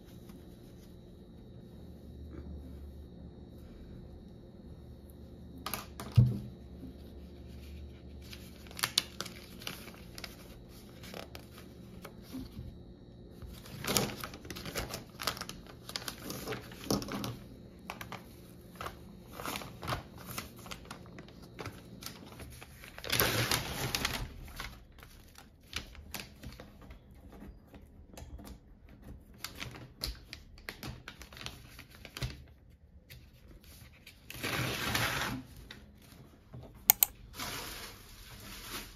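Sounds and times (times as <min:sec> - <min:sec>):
paper and plastic rustling: 0:07.2 - 0:12.6, 0:13.5 - 0:36.5, 0:37.2 - 0:38.9
clicks and taps: 0:36.9 - 0:37.1.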